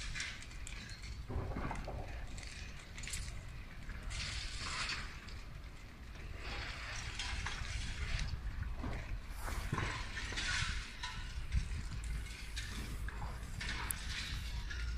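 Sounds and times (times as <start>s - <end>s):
fire crackling and hissing: 0.0s - 14.9s
low rumble: 8.2s - 14.9s.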